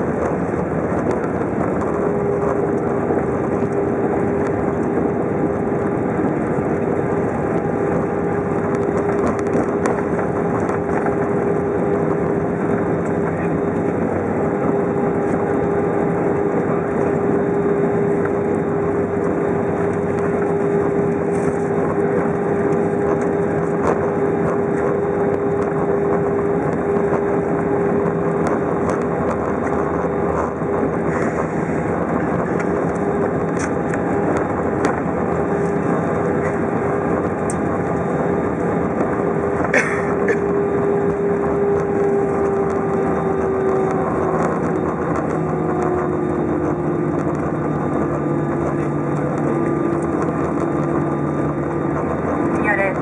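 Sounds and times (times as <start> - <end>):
aircraft engine tone: 0.0 - 53.0
undercarriage rumble: 0.0 - 53.0.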